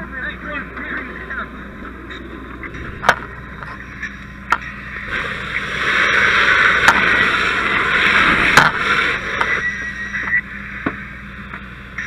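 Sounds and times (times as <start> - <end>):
fire hose spraying water: 5.0 - 9.6.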